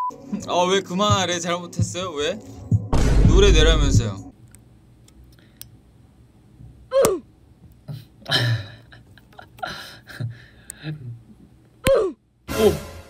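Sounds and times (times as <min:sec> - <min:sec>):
man murmuring and breathing: 0:07.8 - 0:11.5.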